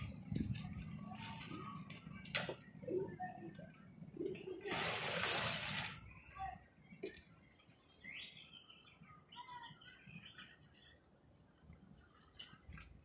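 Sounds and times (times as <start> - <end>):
small birds chirping: 5.8 - 12.4.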